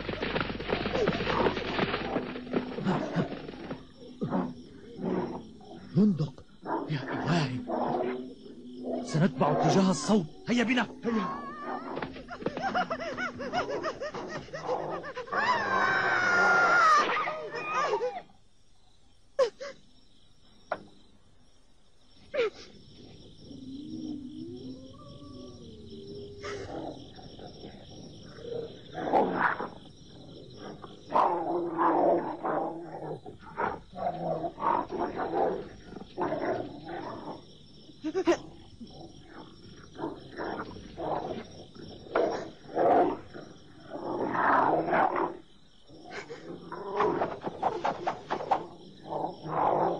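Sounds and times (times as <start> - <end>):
cartoon wolves snarling and growling: 4.2 - 10.3, 10.9 - 18.2, 23.9 - 49.9
wolves yelping and snarling: 11.2 - 18.2.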